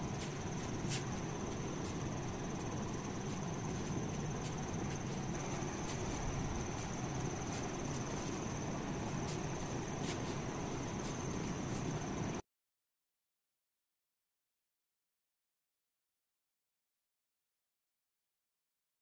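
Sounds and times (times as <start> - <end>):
high-pitched whine: 0.0 - 12.4
steady low hiss: 0.0 - 12.4.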